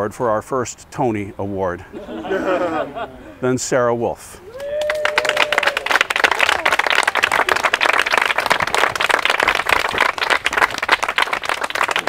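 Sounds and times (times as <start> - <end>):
people clapping: 4.5 - 12.0.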